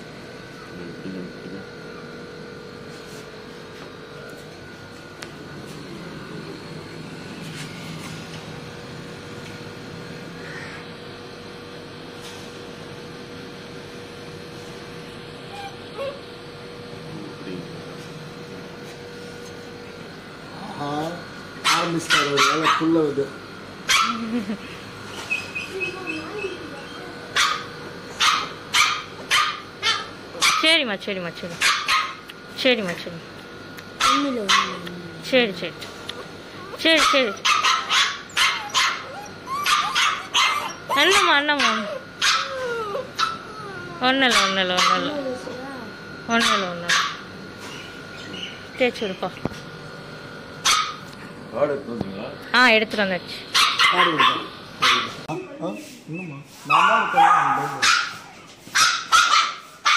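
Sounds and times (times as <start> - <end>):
steady motor hum: 0.0 - 59.9
puppy yelping: 15.5 - 16.3, 21.7 - 22.8, 25.1 - 30.6, 36.5 - 45.2, 46.4 - 48.6, 53.6 - 59.9.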